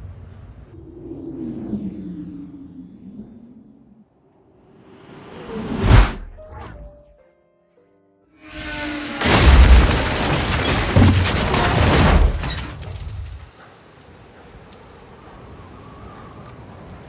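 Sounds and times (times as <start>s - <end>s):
car crashing metal hits: 8.6s - 13.2s
faint high tinkles: 13.8s - 15.1s.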